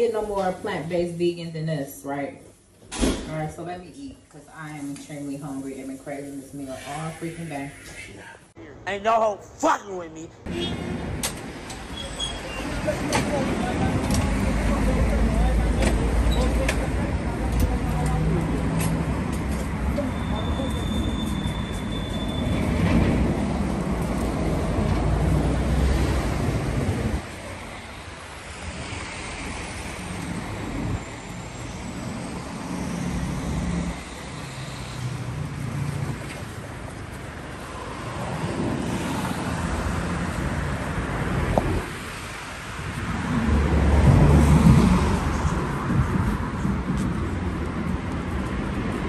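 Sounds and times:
cars passing: 9.9 - 49.0
wind on microphone: 42.8 - 49.0.

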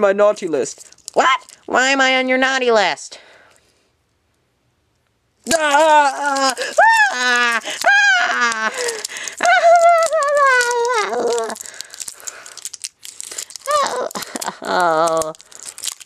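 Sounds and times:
plastic wrap crinkling: 0.7 - 1.7, 5.4 - 16.0
high-pitched wordless crying: 5.4 - 12.4, 13.4 - 15.5.

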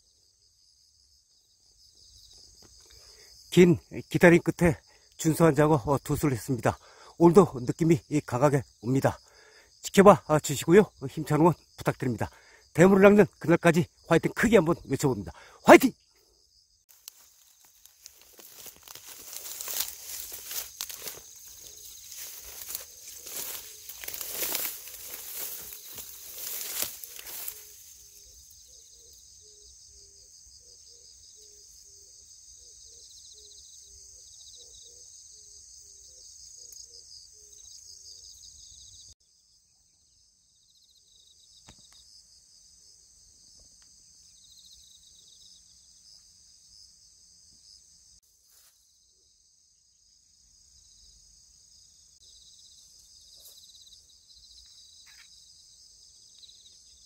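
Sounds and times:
insects chirring: 0.0 - 57.0
handling rustle: 16.9 - 28.0.

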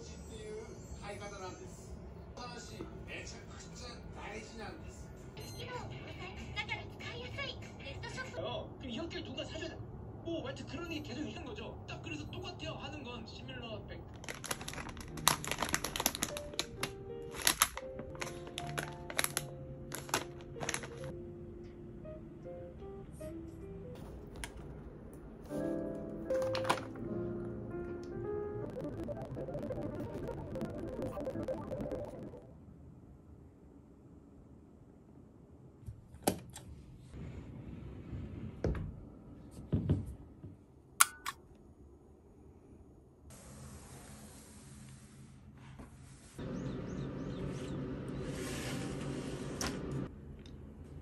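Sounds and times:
soft background music: 0.0 - 8.4, 14.4 - 32.5
snack bag crinkling: 14.1 - 21.1.

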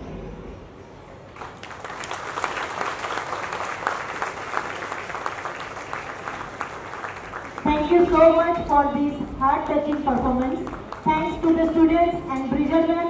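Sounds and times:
audience applauding: 1.3 - 8.0, 9.6 - 11.8.

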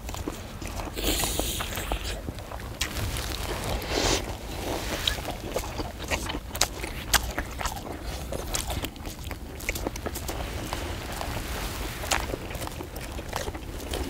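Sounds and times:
people chewing: 0.0 - 14.0
sipping broth: 0.9 - 6.2.

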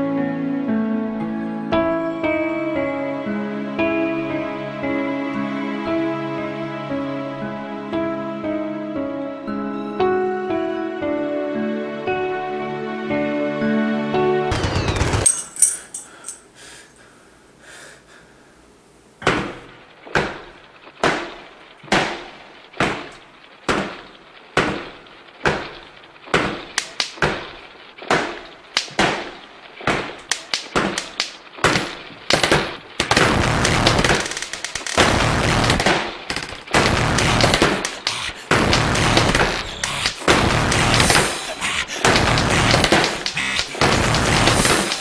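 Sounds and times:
gunshots: 14.5 - 15.4, 19.2 - 45.0.

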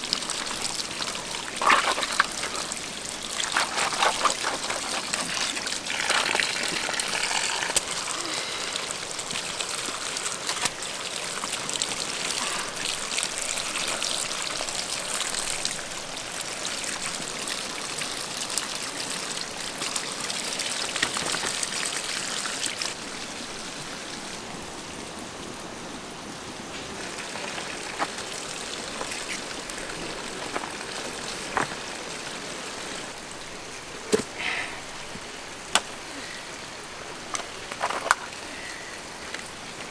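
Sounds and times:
water splashing into basket: 0.1 - 7.9.

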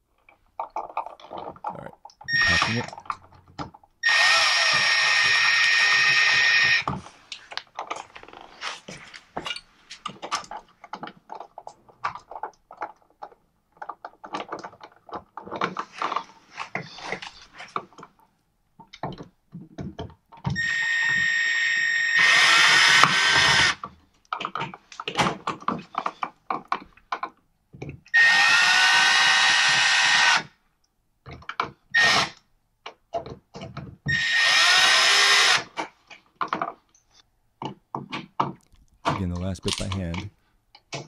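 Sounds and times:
cordless screwdriver whining: 2.3 - 2.9, 4.0 - 6.9, 20.6 - 23.8, 28.1 - 30.5, 32.0 - 32.4, 34.1 - 35.7
small clicks and handling knocks: 6.8 - 20.6, 23.8 - 28.2, 32.8 - 34.0, 35.7 - 41.0.

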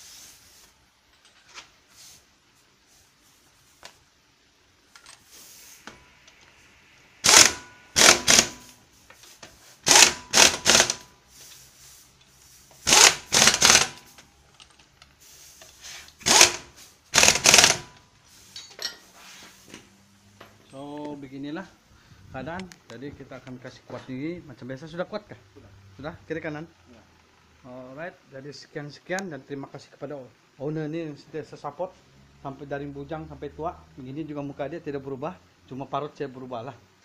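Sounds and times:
impact wrench bursts: 7.2 - 9.0, 9.7 - 11.3, 12.7 - 14.2, 15.7 - 18.0.

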